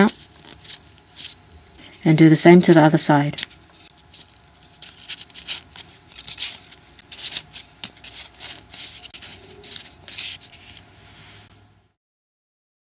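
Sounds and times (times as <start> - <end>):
paper rustling and crinkling: 0.0 - 2.0, 3.4 - 11.5.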